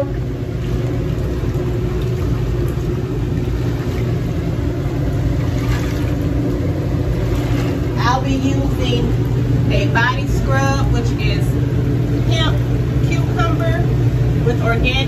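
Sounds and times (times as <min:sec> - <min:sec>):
pump motor humming: 0:00.0 - 0:15.0
water churning and bubbling: 0:00.0 - 0:15.0.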